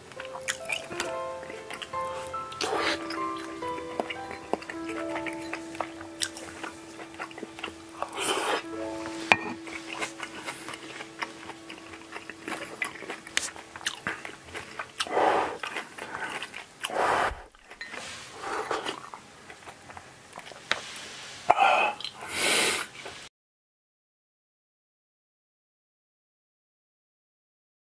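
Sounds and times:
chewing: 0.2 - 20.8
person slurping broth: 12.9 - 19.1.

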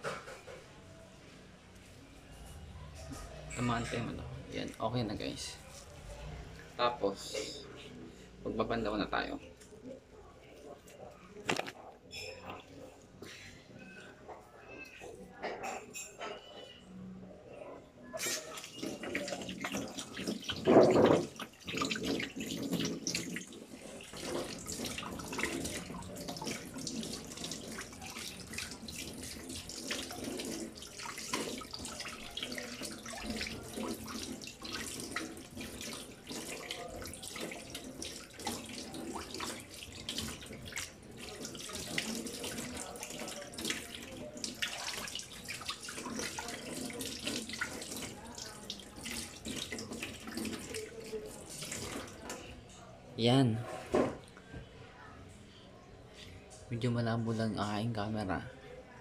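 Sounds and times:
tap water running into sink: 18.2 - 52.4.

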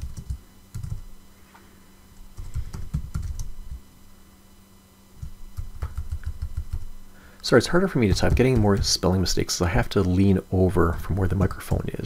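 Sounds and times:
computer keyboard typing: 0.0 - 1.1, 2.4 - 3.5, 5.2 - 6.9
faint steady hum: 0.0 - 12.0.

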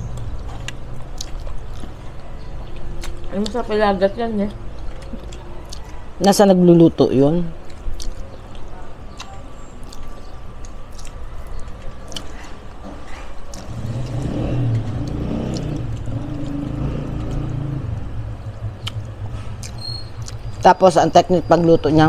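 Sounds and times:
vehicle engine running: 13.1 - 22.0.

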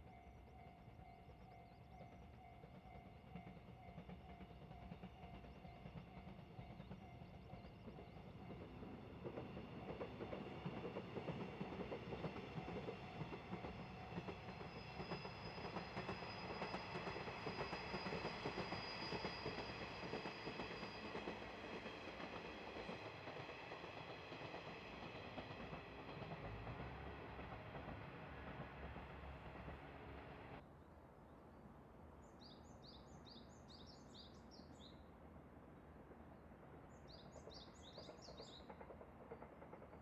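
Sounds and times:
diesel train running past: 0.0 - 30.6, 33.0 - 40.0.

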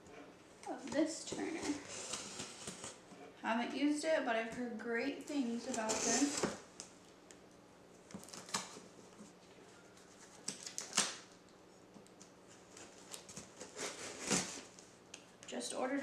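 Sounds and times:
hands scraping cardboard box: 5.7 - 6.6.

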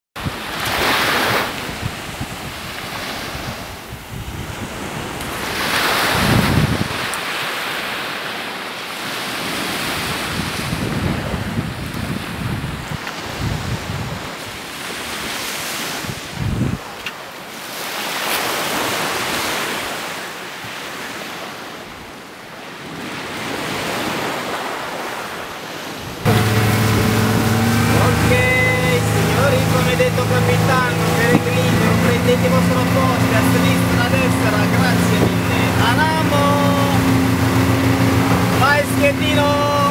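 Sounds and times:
wind gusting on microphone: 0.2 - 7.4, 9.6 - 17.0, 25.8 - 39.9
small waves washing onto sand: 0.2 - 39.9
boat motor running: 26.2 - 39.9.

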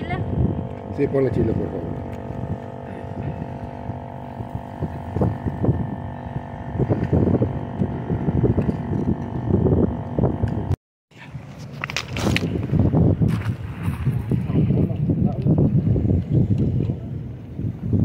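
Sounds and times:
electric air pump humming: 0.0 - 10.8.

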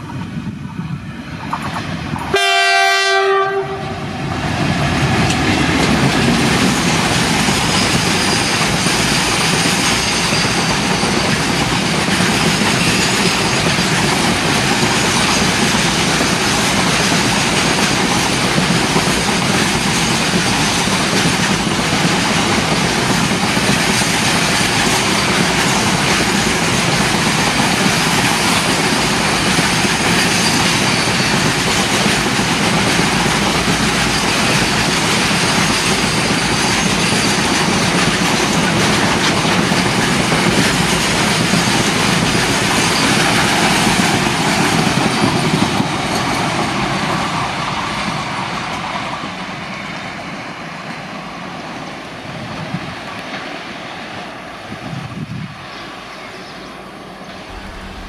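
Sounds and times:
train wheels rolling on rails: 0.0 - 58.0
locomotive horn blast: 2.3 - 4.2.

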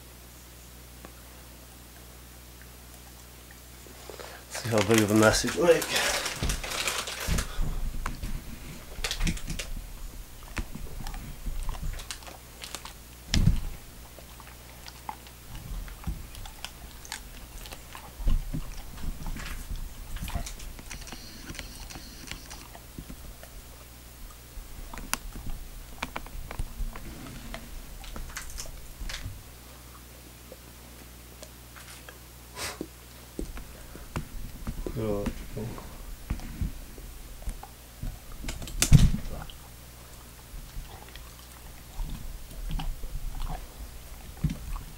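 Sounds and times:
dog chewing: 3.9 - 32.2, 33.1 - 44.9
thumps: 13.3 - 14.2.

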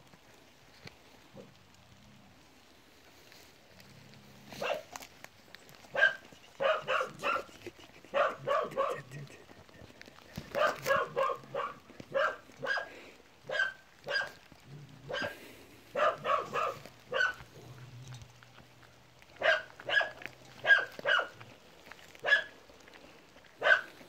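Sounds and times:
dog barking: 4.6 - 4.9, 5.9 - 9.3, 10.4 - 14.4, 15.1 - 17.4, 19.4 - 21.4, 22.2 - 22.5, 23.6 - 24.0.

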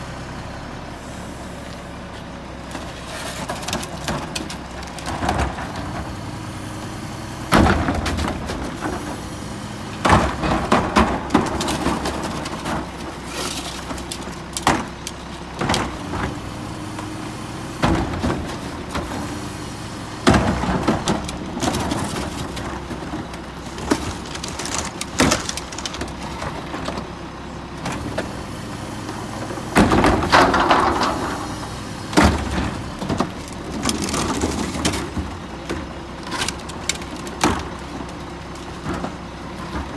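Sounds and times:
diesel engine idling: 0.0 - 39.9
trash tumbling and clattering: 1.5 - 39.9
carts banging against metal can: 10.0 - 16.0.

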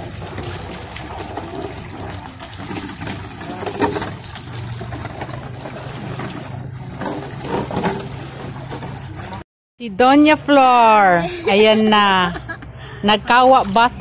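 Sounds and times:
water sloshing and gurgling: 0.0 - 9.4, 13.2 - 14.0.

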